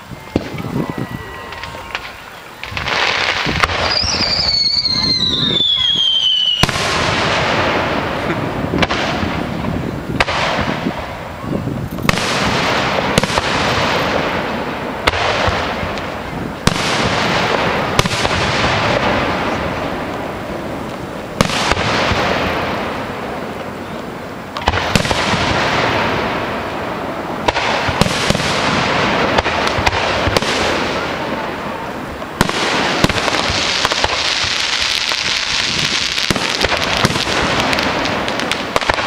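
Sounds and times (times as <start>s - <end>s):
firework shells booming: 1.4s - 39.0s.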